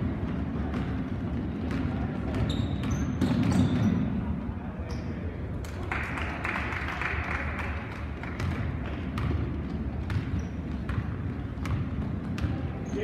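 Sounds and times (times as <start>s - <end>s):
basketball dribbling: 0.0s - 4.2s, 8.3s - 13.0s
sneakers squeaking on hardwood: 1.7s - 4.1s, 10.1s - 13.0s.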